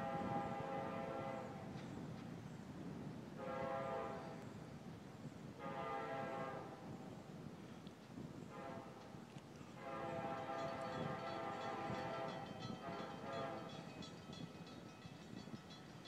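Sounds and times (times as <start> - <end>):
distant locomotive air horn: 0.0 - 1.7, 3.4 - 4.4, 5.6 - 6.8, 8.5 - 9.0, 9.8 - 14.0.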